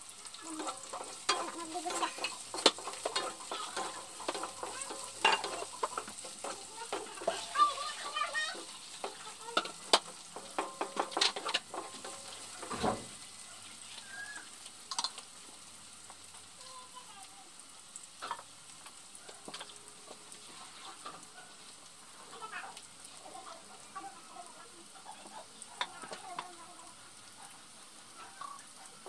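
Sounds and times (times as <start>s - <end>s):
onions sizzling in oil: 0.0s - 29.0s
spatula scraping pan: 0.3s - 15.2s, 19.2s - 23.9s.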